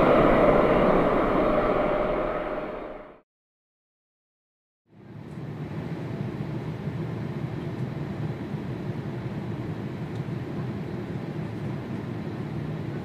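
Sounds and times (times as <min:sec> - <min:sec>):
distant jet engines rumbling: 0:00.0 - 0:03.2.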